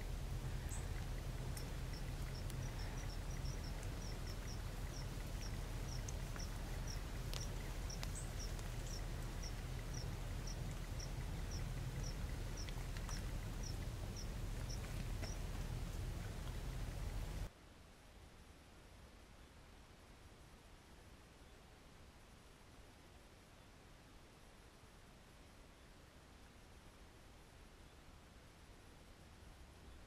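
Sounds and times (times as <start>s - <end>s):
faint ticks: 0.0s - 17.5s
low steady rumble: 0.0s - 17.6s.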